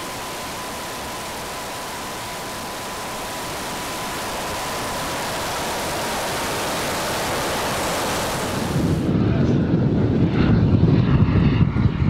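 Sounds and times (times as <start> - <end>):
faint steady whine: 0.0 - 9.2
jet engine hiss: 0.0 - 9.2.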